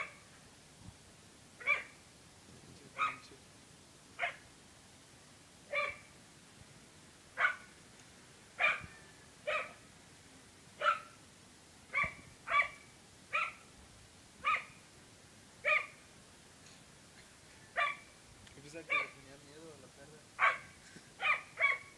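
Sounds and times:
dog barking: 0:01.6 - 0:02.0, 0:03.0 - 0:03.3, 0:04.2 - 0:04.4, 0:05.7 - 0:06.1, 0:07.4 - 0:07.7, 0:08.6 - 0:08.9, 0:09.5 - 0:09.8, 0:10.8 - 0:11.2, 0:11.9 - 0:13.6, 0:14.4 - 0:14.8, 0:15.6 - 0:16.0, 0:17.8 - 0:18.1, 0:18.9 - 0:19.2, 0:20.4 - 0:21.9.

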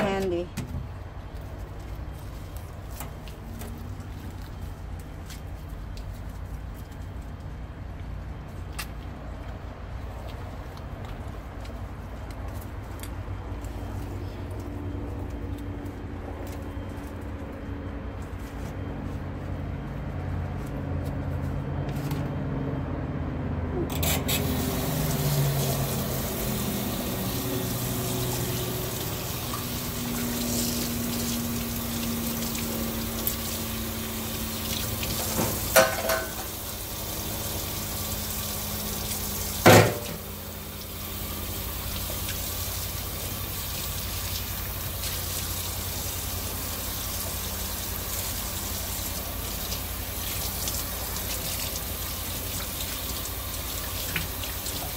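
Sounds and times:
tap water pouring into sink: 0:24.4 - 0:54.9.

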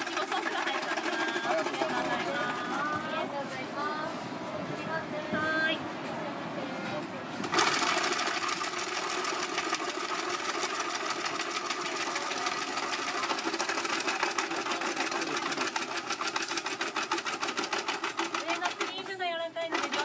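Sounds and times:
rapid even clicking: 0:07.4 - 0:20.0.

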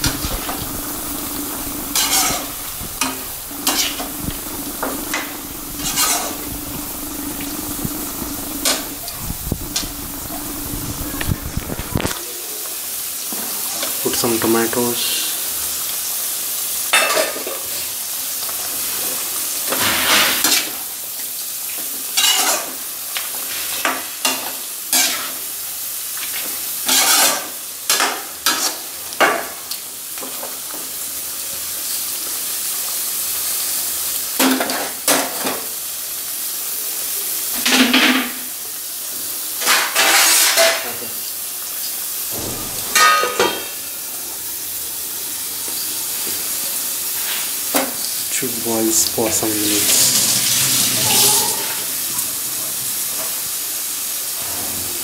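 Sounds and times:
metal spatula scraping pan: 0:00.0 - 0:09.0, 0:26.9 - 0:27.4
curry sizzling: 0:00.0 - 0:55.0.

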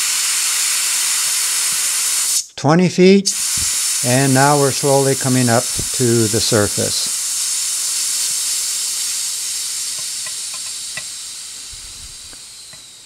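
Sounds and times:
air hissing out of vent: 0:00.0 - 0:02.5, 0:03.3 - 0:13.0.

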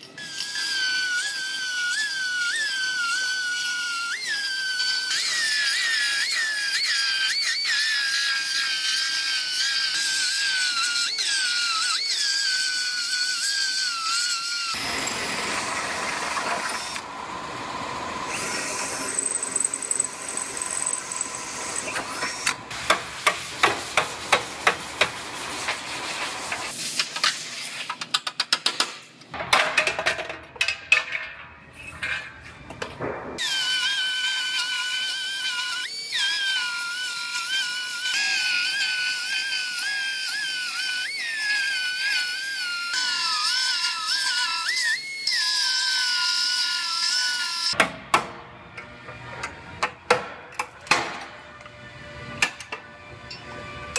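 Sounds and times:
cordless drill boring sheet metal: 0:00.0 - 0:26.7, 0:33.4 - 0:47.8
belt file grinding steel: 0:18.3 - 0:25.8.

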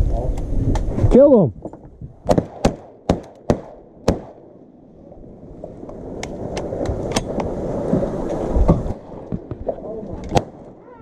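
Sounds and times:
shotgun blasts: 0:02.2 - 0:04.5.

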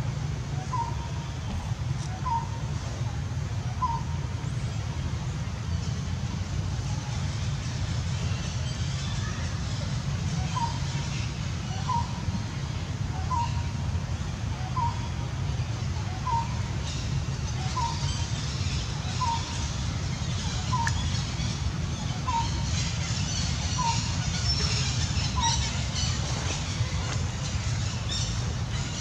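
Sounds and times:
bird calling: 0:00.6 - 0:02.6, 0:16.0 - 0:29.0.

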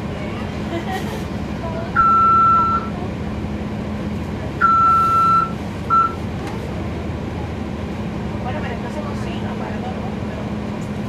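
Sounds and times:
diesel bus engine hum: 0:00.0 - 0:11.0
loud electronic warning beeps: 0:02.0 - 0:02.9, 0:04.6 - 0:06.2.

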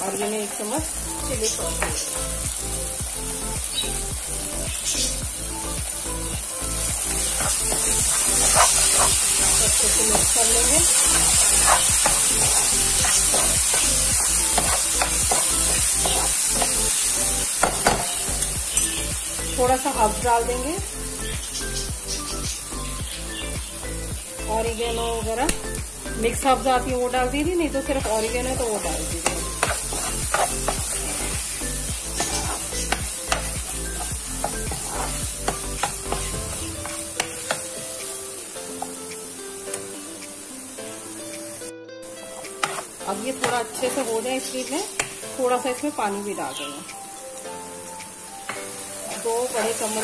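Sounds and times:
vegetables sizzling: 0:00.0 - 0:50.0
spatula scraping a frying pan: 0:07.4 - 0:16.9, 0:29.2 - 0:31.3, 0:32.0 - 0:36.3
metal spoon scraping pan: 0:29.2 - 0:31.3.

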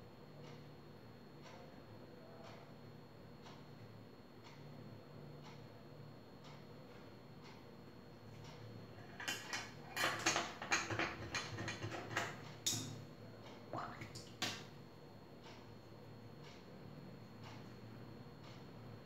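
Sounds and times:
painting tools clicking and knocking: 0:09.0 - 0:13.0.

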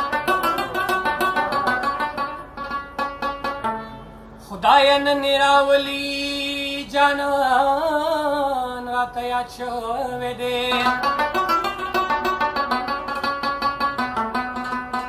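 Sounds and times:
rabab plucked notes: 0:00.0 - 0:06.5, 0:10.4 - 0:15.0.

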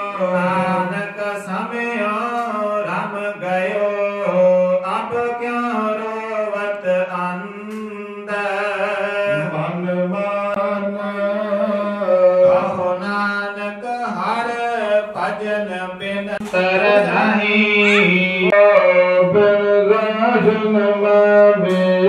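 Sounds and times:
person chanting held notes: 0:16.3 - 0:22.0.

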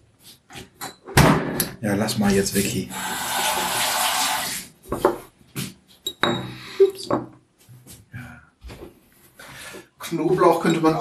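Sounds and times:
dishes and utensils clinking: 0:06.1 - 0:07.3.

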